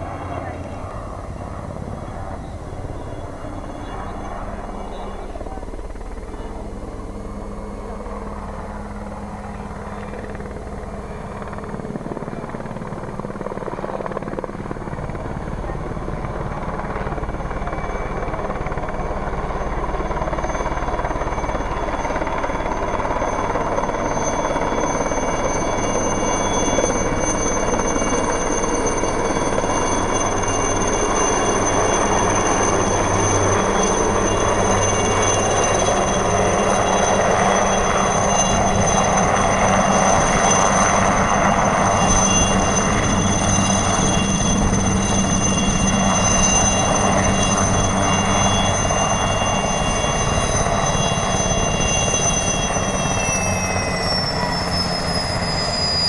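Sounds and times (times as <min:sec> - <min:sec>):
helicopter rotor and engine noise: 0:00.0 - 0:56.0
high turbine whine: 0:00.0 - 0:56.0.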